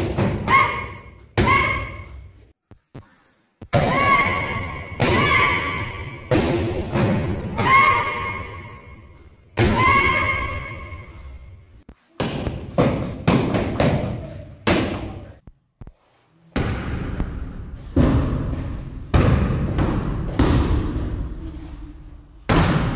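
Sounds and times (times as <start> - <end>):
kicks smacking kick paddle: 12.2 - 15.2.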